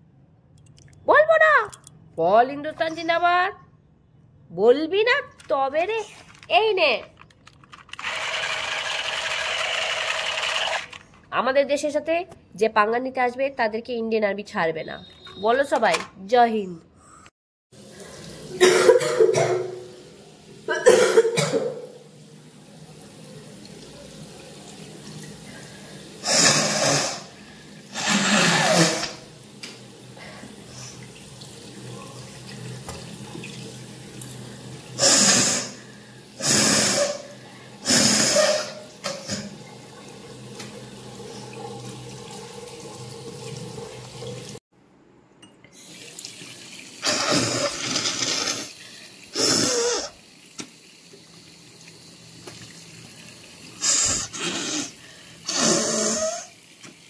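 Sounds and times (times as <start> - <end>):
woman coughing and spitting: 18.6 - 19.8, 20.7 - 21.8
tap water running into sink: 30.8 - 35.2, 38.4 - 44.6, 50.2 - 54.2, 56.3 - 57.0.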